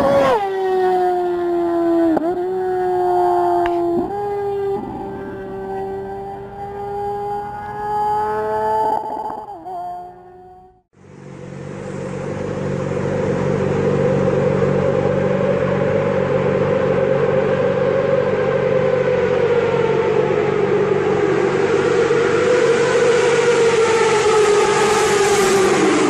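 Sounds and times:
motorcycle engine at high revs: 0.0s - 8.5s, 10.9s - 26.0s.

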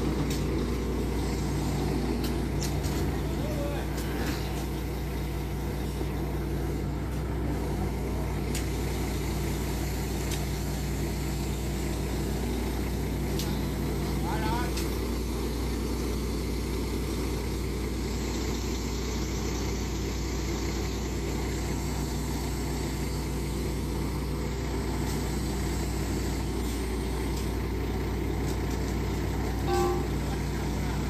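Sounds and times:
diesel engine idling: 0.0s - 31.0s
brief higher tone: 29.6s - 30.2s.

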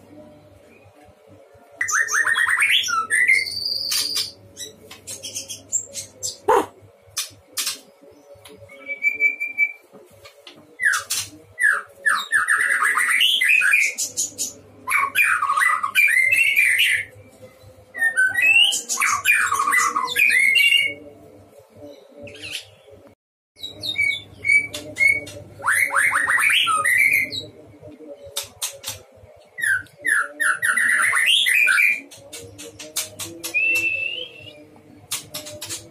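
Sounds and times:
bird whistling song: 1.8s - 6.6s, 8.7s - 9.8s, 10.8s - 14.3s, 23.6s - 27.5s, 29.6s - 32.1s, 33.0s - 34.7s.

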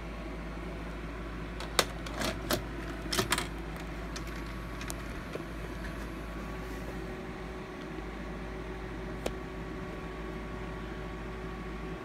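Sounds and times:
steady low hum: 0.0s - 12.0s
tape mechanism clicks and clunks: 1.6s - 6.2s.

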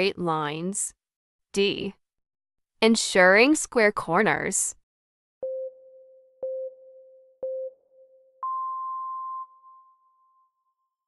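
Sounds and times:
short countdown beeps: 5.4s - 9.9s
higher longer beep: 5.4s - 10.4s.

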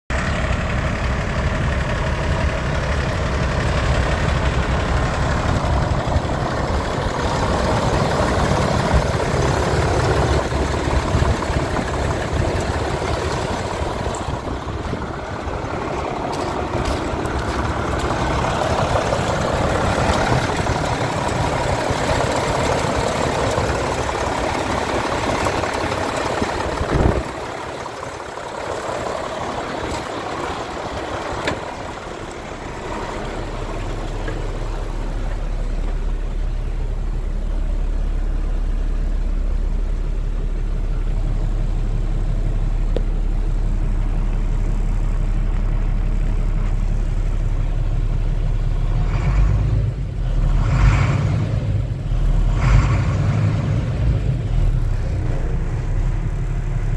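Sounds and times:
diesel engine idling: 0.1s - 56.9s.

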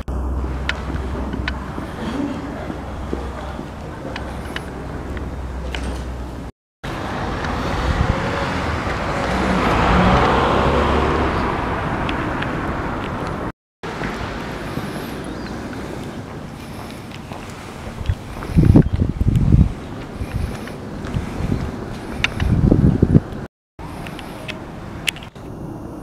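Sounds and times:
car passing: 0.0s - 18.8s.

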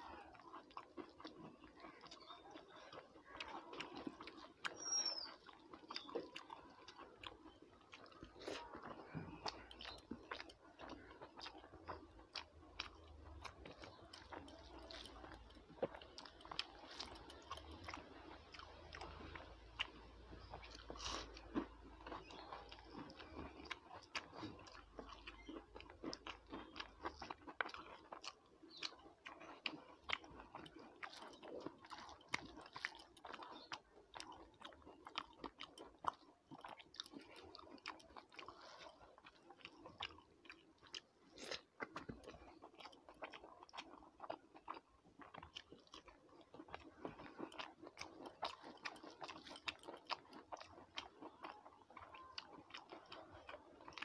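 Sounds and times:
person chewing and crunching food: 0.0s - 54.0s.

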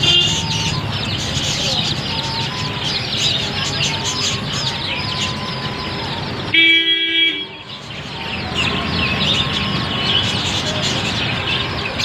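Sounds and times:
vehicle horn: 0.0s - 0.6s, 6.5s - 7.8s.

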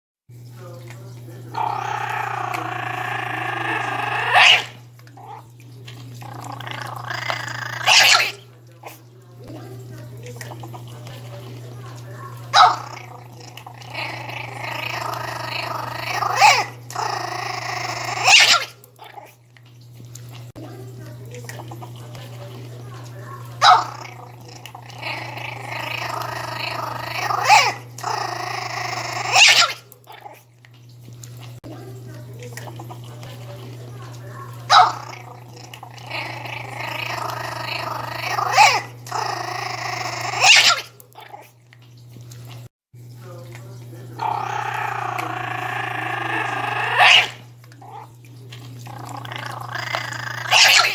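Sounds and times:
puppy growling: 1.4s - 9.5s, 10.3s - 19.4s, 21.5s - 30.5s, 32.5s - 41.6s, 44.2s - 50.9s
puppy barking: 1.6s - 5.5s, 6.9s - 8.4s, 12.2s - 19.3s, 23.2s - 24.2s, 24.9s - 30.4s, 34.3s - 41.4s, 50.2s - 50.9s.

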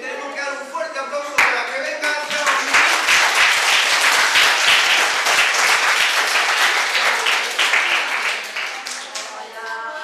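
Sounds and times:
crowd applause: 2.1s - 9.5s.

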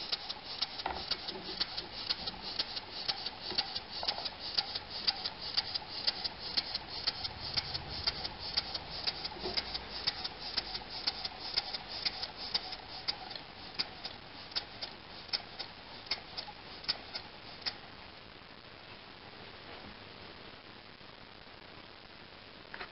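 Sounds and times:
model steam engine clicking: 0.0s - 17.8s.

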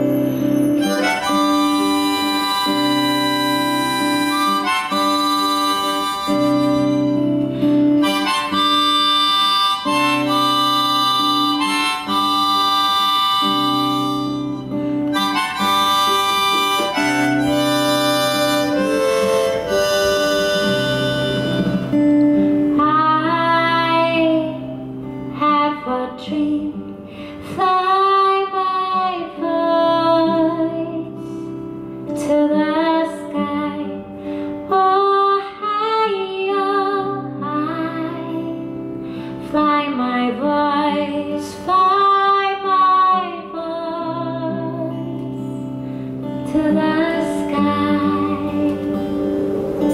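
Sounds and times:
harmonica playing: 0.0s - 22.7s
strummed acoustic guitar: 0.0s - 49.9s
woman singing: 22.8s - 31.2s, 32.1s - 38.8s, 39.4s - 45.6s, 46.4s - 49.1s.

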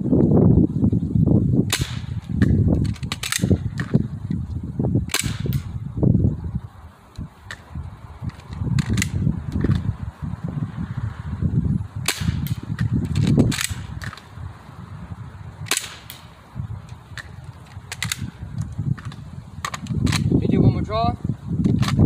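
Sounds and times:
pistol firing sharp pops: 1.7s - 4.0s, 5.1s - 5.7s, 12.0s - 14.3s, 15.6s - 16.4s.

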